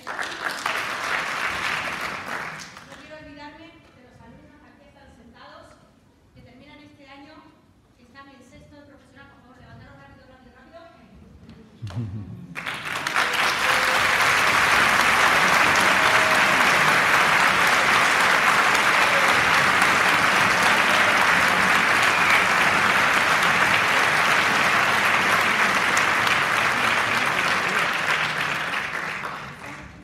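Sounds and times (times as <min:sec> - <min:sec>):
audience applauding: 0:00.0 - 0:03.0, 0:12.5 - 0:30.0.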